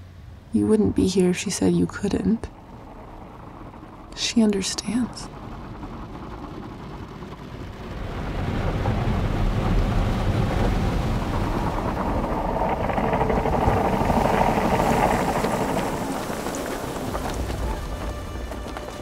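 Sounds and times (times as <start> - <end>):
car wash water jets spraying: 5.3 - 19.0.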